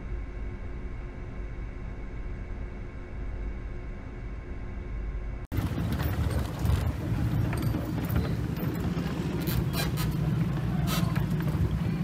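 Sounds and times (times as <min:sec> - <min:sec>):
churning water: 0:05.5 - 0:12.0
knocks and clicks: 0:05.5 - 0:12.0
yacht engines rumbling: 0:05.5 - 0:12.0.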